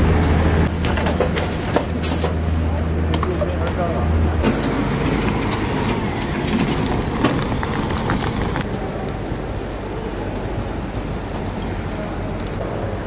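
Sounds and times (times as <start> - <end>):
bus engine running: 0.0 - 13.0
suitcase wheels rattling on concrete: 4.5 - 8.7.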